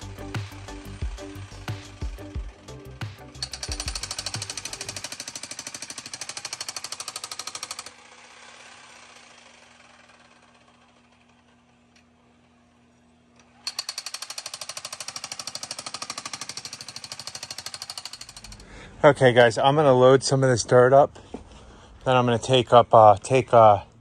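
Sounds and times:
jackhammer pounding soil: 0:00.0 - 0:12.6, 0:13.6 - 0:20.0.

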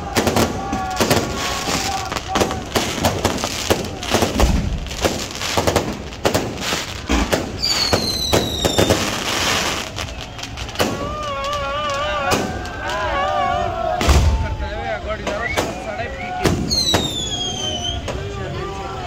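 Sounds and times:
fireworks bangs and crackles: 0:00.0 - 0:13.2, 0:13.9 - 0:18.5
falling whistle: 0:15.3 - 0:18.1.

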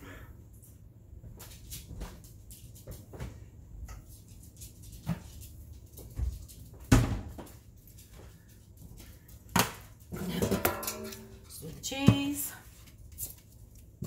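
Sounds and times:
knocks and clunks in kitchen: 0:04.9 - 0:08.4, 0:09.0 - 0:12.9.

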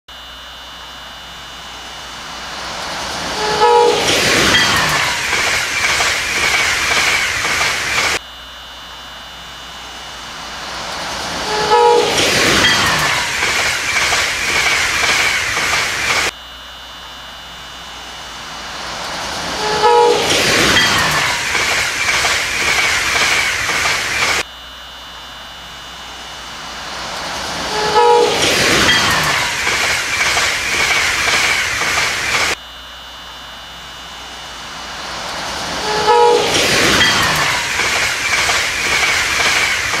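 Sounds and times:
falling whine: 0:00.1 - 0:40.0
train wheels rushing on rails: 0:01.1 - 0:08.2, 0:09.5 - 0:16.4, 0:17.6 - 0:24.5, 0:25.8 - 0:32.6, 0:34.2 - 0:40.0
train horn: 0:03.3 - 0:04.4, 0:11.4 - 0:12.4, 0:19.5 - 0:20.4, 0:27.6 - 0:28.5, 0:35.8 - 0:36.6
wheels clickety-clack: 0:03.6 - 0:08.2, 0:11.5 - 0:16.3, 0:19.7 - 0:24.4, 0:27.8 - 0:32.6, 0:36.0 - 0:40.0.

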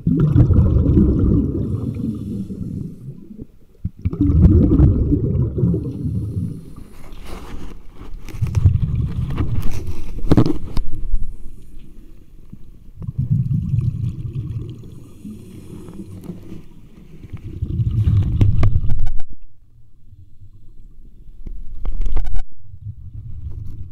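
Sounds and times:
underwater bubbles rushing: 0:00.0 - 0:06.9, 0:08.5 - 0:09.6, 0:13.0 - 0:16.2, 0:17.4 - 0:19.2.

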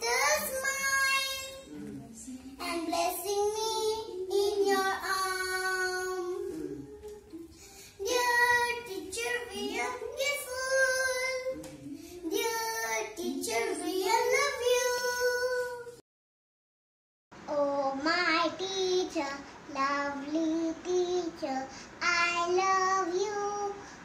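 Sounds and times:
girl singing: 0:00.0 - 0:16.0, 0:17.5 - 0:23.9.

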